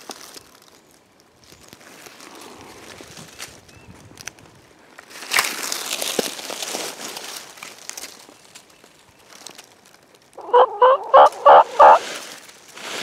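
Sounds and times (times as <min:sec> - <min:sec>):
dry leaves rustling underfoot: 0:00.0 - 0:13.0
turkey gobbling: 0:10.4 - 0:12.1.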